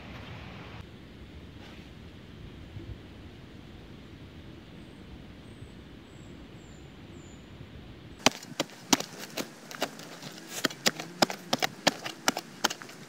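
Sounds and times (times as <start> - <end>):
shovel chopping into soil: 8.2 - 13.0.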